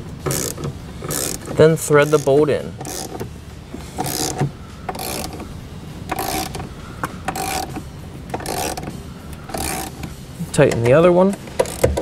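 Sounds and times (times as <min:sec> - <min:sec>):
ratchet clicking: 0:00.3 - 0:03.2, 0:04.0 - 0:05.5, 0:06.1 - 0:10.2, 0:11.5 - 0:12.0.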